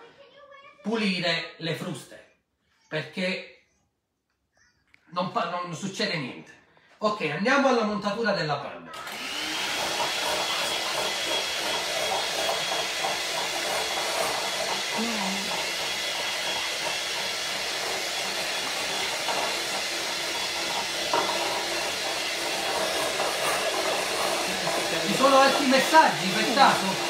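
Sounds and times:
electric hand mixer whipping cream: 0:08.9 - 0:27.0.

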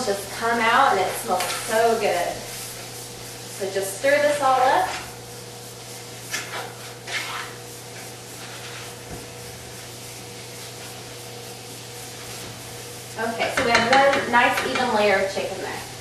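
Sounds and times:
chicken sizzling in butter: 0:00.0 - 0:16.0
spoon scraping in a skillet: 0:00.3 - 0:12.7.

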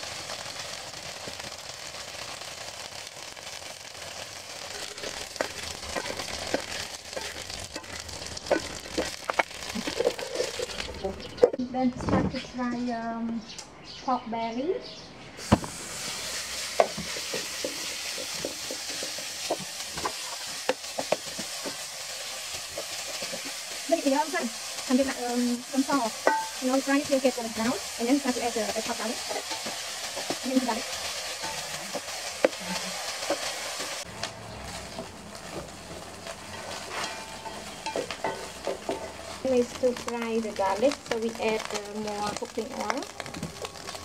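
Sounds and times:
meat sizzling in hot oil: 0:00.0 - 0:11.4, 0:15.4 - 0:44.0
spatula tapping and scraping pan: 0:05.0 - 0:11.6, 0:26.2 - 0:26.6, 0:36.8 - 0:39.2
metal spatula scraping pan: 0:36.2 - 0:39.3.

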